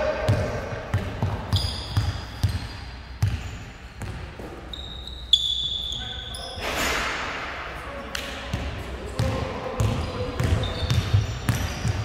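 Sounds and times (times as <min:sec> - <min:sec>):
basketball bouncing on gym floor: 0:00.2 - 0:04.7, 0:08.2 - 0:12.0
sneakers squeaking on court: 0:00.3 - 0:07.3, 0:08.4 - 0:12.0.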